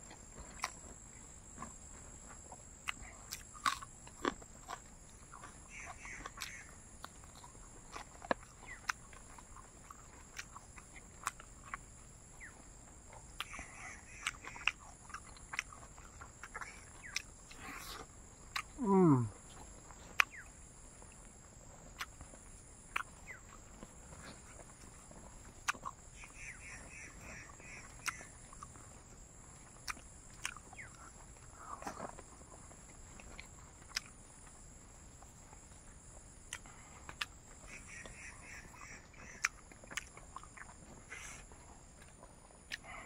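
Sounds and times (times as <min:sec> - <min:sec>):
person eating with mouth clicks: 0:02.8 - 0:11.8, 0:13.4 - 0:19.3, 0:22.9 - 0:23.3, 0:29.8 - 0:32.2, 0:33.2 - 0:34.2, 0:36.4 - 0:37.4, 0:39.2 - 0:43.0
small animal chirping: 0:02.9 - 0:18.9, 0:20.0 - 0:20.6, 0:22.9 - 0:28.9, 0:29.6 - 0:32.2, 0:37.2 - 0:42.1.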